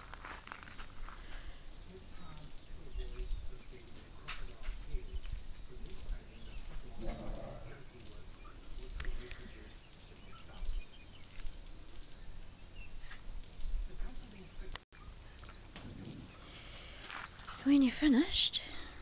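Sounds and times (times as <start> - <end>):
insect chorus: 0.0 - 19.0
faint low rumbles: 2.7 - 9.5.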